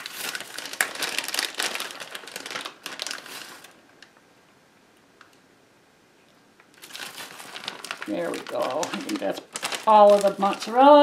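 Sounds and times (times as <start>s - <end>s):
plastic package crinkling: 0.0s - 4.2s, 6.7s - 11.0s.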